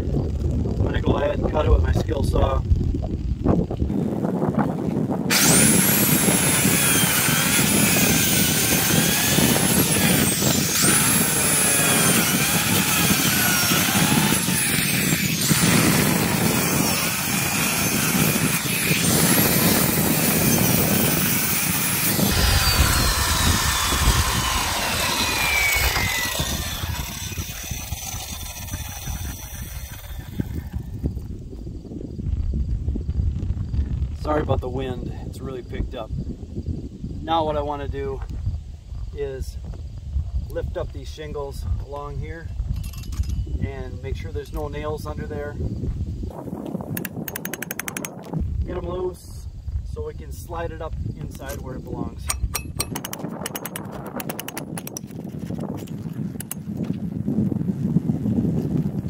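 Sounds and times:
wind on microphone: 0.0 - 59.0
circular saw cutting: 5.3 - 30.9
saw blade spinning down: 5.3 - 31.0.

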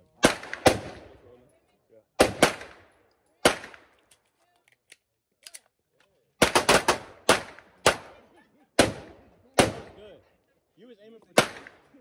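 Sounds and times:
pistol shots with ringing echo: 0.2 - 1.2, 2.2 - 4.0, 6.4 - 10.0, 11.4 - 11.9.

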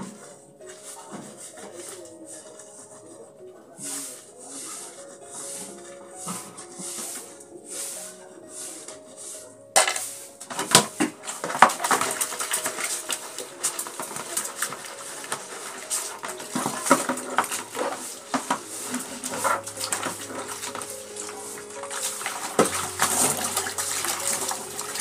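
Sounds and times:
scrubbing dishes: 0.0 - 25.0
dishes clattering: 9.8 - 25.0.

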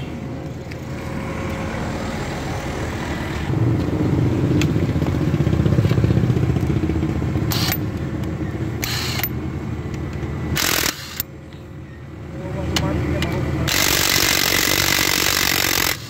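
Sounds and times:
engine low rumble: 0.0 - 16.0
impact wrench bursts: 7.4 - 7.9, 8.8 - 9.4, 10.5 - 11.3, 13.6 - 16.0.

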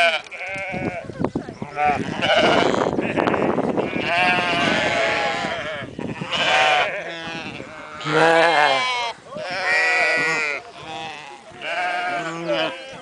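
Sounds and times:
sheep bleating: 0.0 - 1.1, 1.7 - 13.0.

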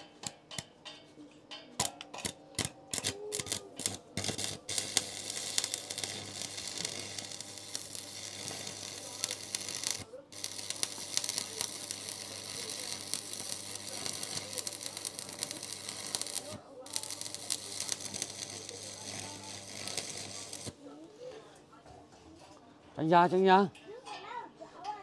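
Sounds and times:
arc welding crackling sizzle: 1.8 - 20.9.

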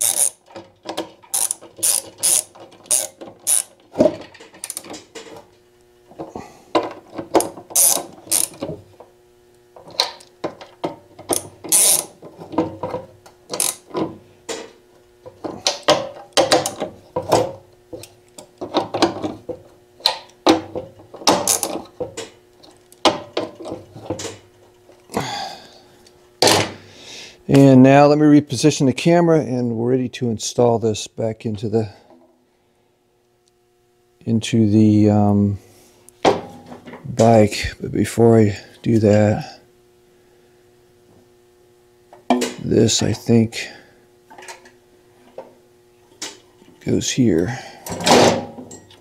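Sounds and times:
socket ratchet clicking: 0.0 - 3.8, 7.4 - 8.6, 11.3 - 12.1, 13.5 - 13.8.

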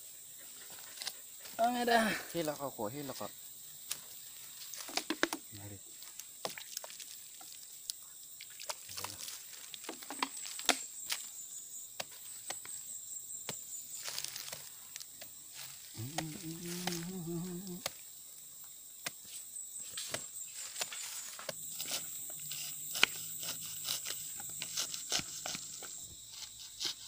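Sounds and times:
high insect drone: 0.0 - 27.0
person's voice: 1.6 - 2.7, 16.0 - 17.9
machete cutting fruit rind: 16.0 - 17.2, 20.0 - 27.0.

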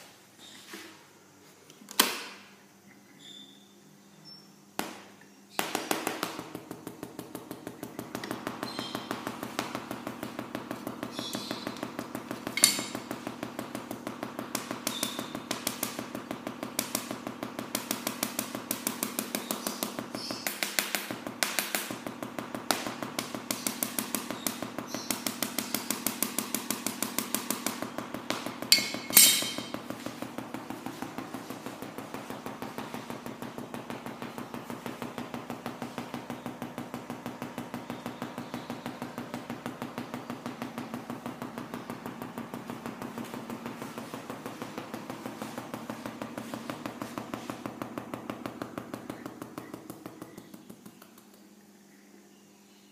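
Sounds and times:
sharp spark cracks: 16.7 - 29.8.

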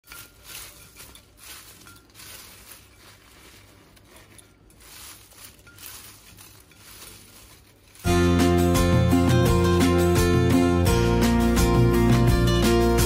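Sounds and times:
crisp chips crackling and rustling: 0.0 - 9.1.

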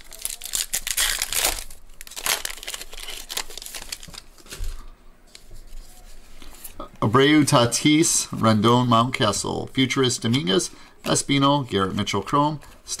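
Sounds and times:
foil wrapper tearing and crinkling: 0.0 - 4.5.

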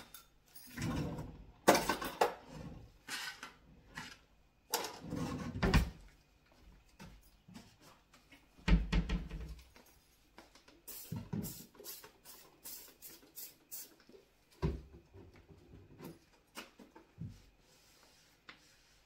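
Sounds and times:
drawers sliding and bumping shut: 0.7 - 2.9, 4.7 - 6.0.

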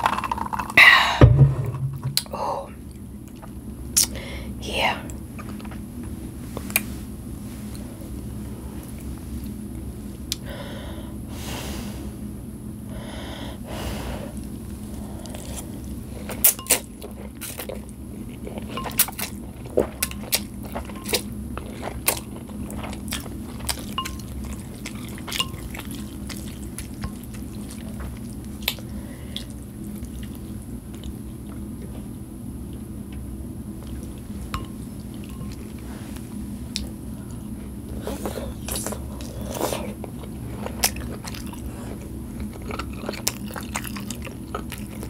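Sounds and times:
slurping and chewing: 14.4 - 32.2, 37.9 - 45.0.

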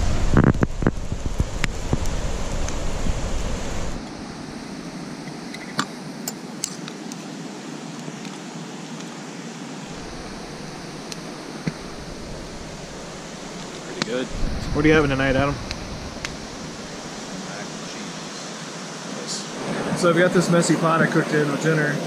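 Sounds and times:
river rushing: 0.0 - 22.0
low rumble: 9.9 - 17.9.

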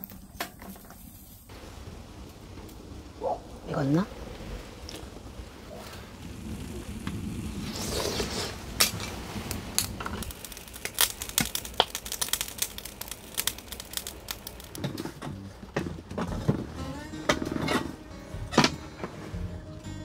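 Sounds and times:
crinkling and rustling: 4.3 - 18.0.

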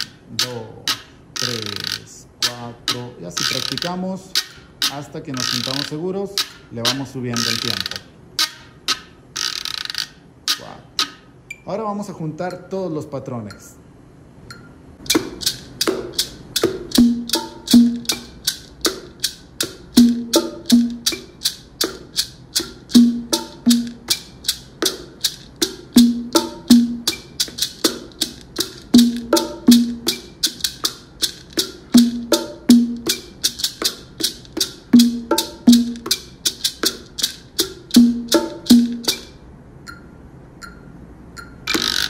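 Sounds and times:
bongos playing: 0.0 - 11.3, 15.0 - 40.1
maraca strokes: 0.0 - 11.3, 15.0 - 39.4
faint metronome ticks: 0.4 - 4.0, 39.8 - 40.8.

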